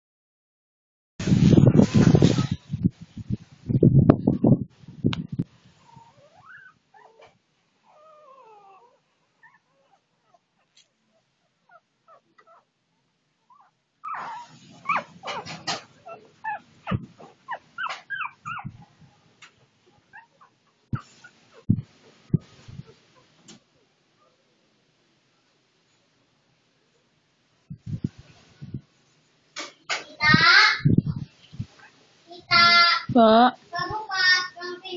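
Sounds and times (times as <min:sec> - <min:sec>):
rustling near microphone: 0:01.2 - 0:07.4, 0:14.0 - 0:23.8, 0:27.6 - 0:34.9
puppies whimpering and squeaking: 0:05.8 - 0:10.8, 0:13.5 - 0:18.9, 0:20.1 - 0:21.8.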